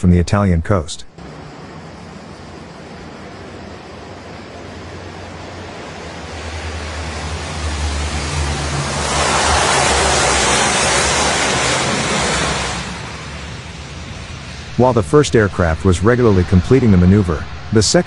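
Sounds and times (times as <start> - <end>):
aircraft engines droning: 0.0 - 18.0
broad rushing water noise: 3.8 - 13.6.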